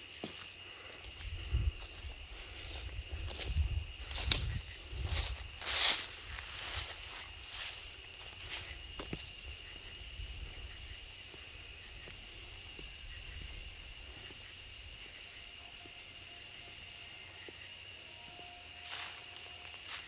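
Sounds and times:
crickets trilling: 0.0 - 20.0
footsteps: 0.2 - 15.2.

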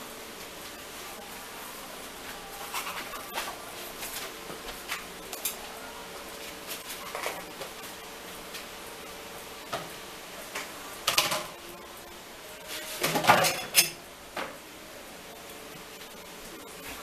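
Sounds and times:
faint steady hum: 0.0 - 17.0
tableware clicks and taps: 13.0 - 14.5.

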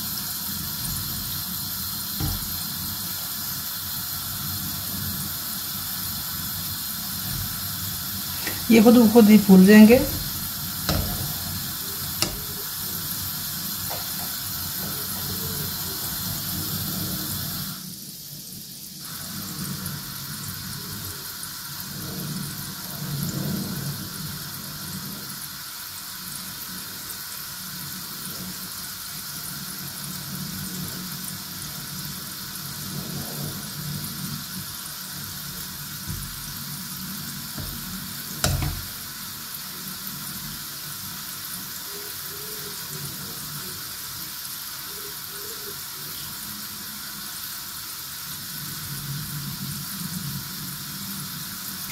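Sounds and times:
balls deep-frying in oil: 0.0 - 51.9
sharp knock: 2.2 - 2.5, 10.9 - 11.3, 37.6 - 38.9.

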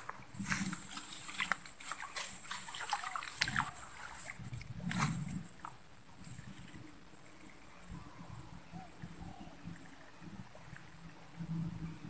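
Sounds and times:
tall grass rustling: 0.0 - 8.1.

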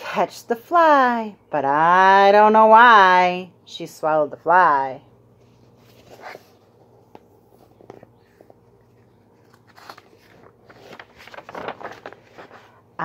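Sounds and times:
paper pages rustling: 5.4 - 12.9.

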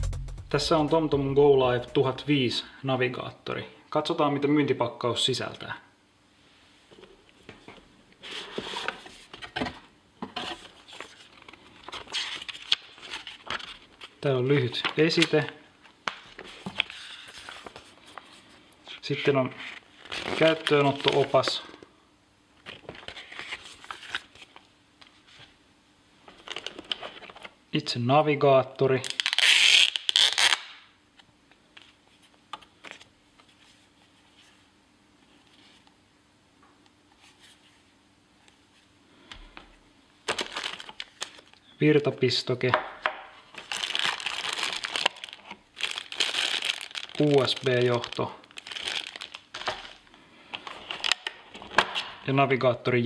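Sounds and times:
card and paper rustling: 8.2 - 14.2, 14.8 - 18.5, 19.6 - 21.8, 22.6 - 25.5, 40.3 - 41.6, 43.5 - 51.9
stiff plastic packaging crinkling: 19.8 - 21.7, 29.0 - 30.7, 40.2 - 41.6, 43.5 - 51.8.

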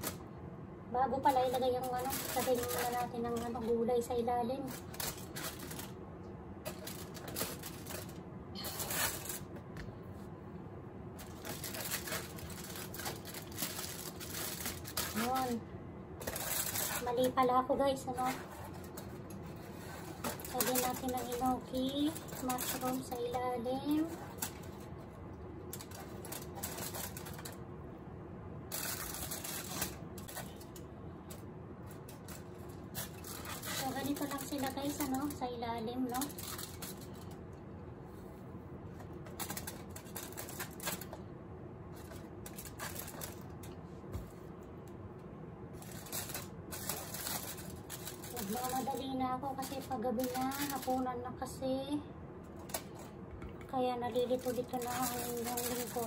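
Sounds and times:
foil crinkling: 1.2 - 6.0, 6.6 - 9.6, 11.2 - 15.6, 16.2 - 24.9, 25.7 - 27.6, 28.7 - 37.4, 39.2 - 41.2, 42.0 - 43.8, 45.8 - 51.1, 54.0 - 56.0.

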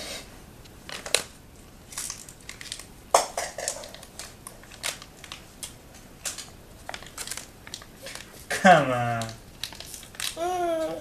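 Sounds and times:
plastic packet crinkling and clicking: 0.9 - 1.3, 1.9 - 11.0.

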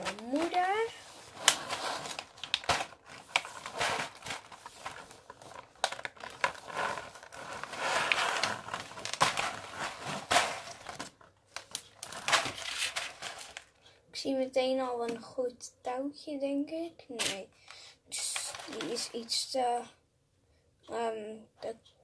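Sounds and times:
rustling: 0.0 - 13.8.

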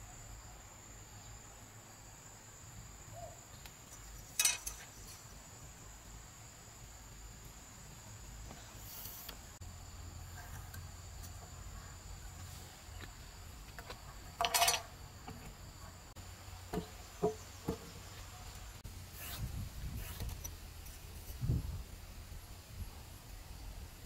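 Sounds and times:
insects droning: 0.0 - 24.0
metal ruler clattering on wood: 4.3 - 4.9, 14.4 - 14.9.

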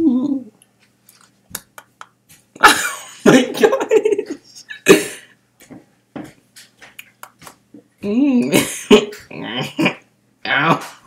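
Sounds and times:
boy's wavering voiced sound: 0.0 - 0.5
mouth clicks: 1.5 - 2.2, 6.9 - 7.6.

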